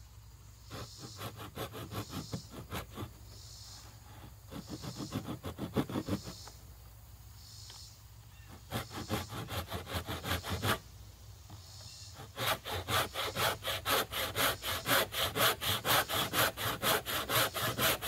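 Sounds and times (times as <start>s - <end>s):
hand saw cutting wood: 0.7s - 3.2s, 4.5s - 6.3s, 8.5s - 10.8s, 12.2s - 18.0s.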